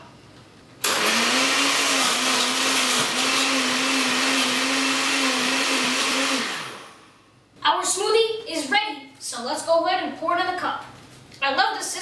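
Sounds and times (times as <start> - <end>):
blender motor blending ice: 0.8 - 7.0.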